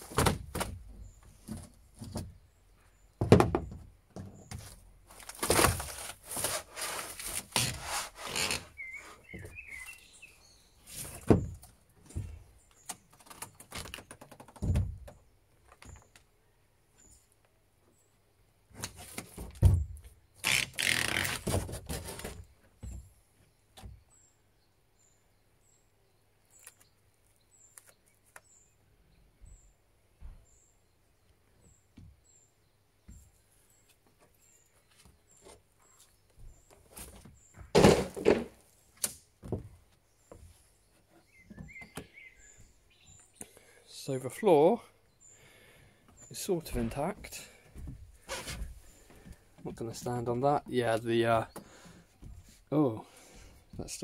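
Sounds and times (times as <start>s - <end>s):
wood knocking and thudding: 0.0s - 2.4s, 3.2s - 4.8s, 11.0s - 16.0s, 19.1s - 20.2s, 21.4s - 23.1s, 36.4s - 40.5s, 41.4s - 42.1s, 46.7s - 49.4s
wood creaking and scraping: 0.0s - 16.3s, 18.7s - 24.0s, 33.8s - 43.2s, 45.4s - 54.0s
small birds chirping: 0.7s - 5.3s, 7.1s - 21.3s, 22.1s - 37.8s, 38.6s - 54.0s.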